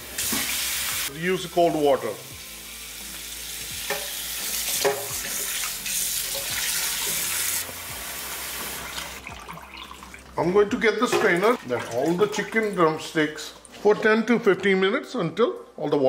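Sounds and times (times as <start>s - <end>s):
tap water running into metal bowl: 3.6s - 7.8s, 8.4s - 10.3s.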